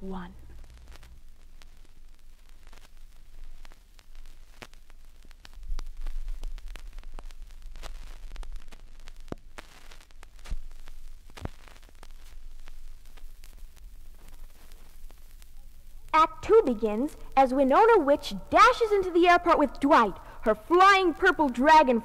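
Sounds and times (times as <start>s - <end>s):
vinyl clicks and pops: 0.4s - 17.4s.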